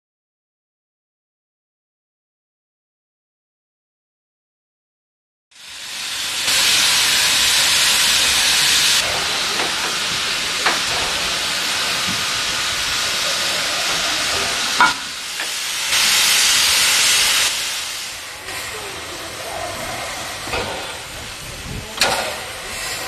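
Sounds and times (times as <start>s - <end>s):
locomotive steam hissing: 5.5s - 23.0s.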